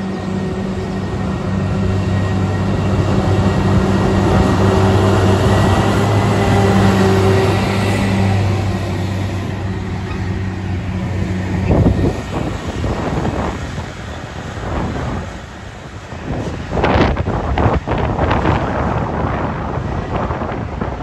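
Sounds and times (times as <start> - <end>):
diesel engine humming: 0.0 - 16.1
rail noise: 0.0 - 21.0.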